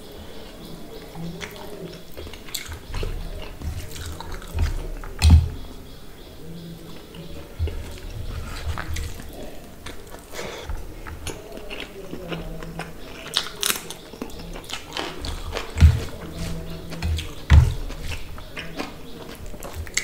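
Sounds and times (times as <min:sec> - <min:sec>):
wet squishing of fingers mixing rice: 0:00.0 - 0:05.9, 0:07.0 - 0:20.0
chewing and mouth smacks: 0:01.4 - 0:05.4, 0:07.9 - 0:20.0.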